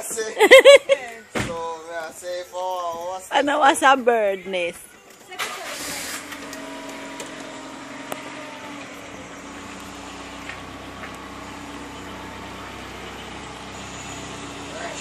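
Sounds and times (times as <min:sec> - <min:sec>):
vehicle engine running: 0:05.6 - 0:15.0.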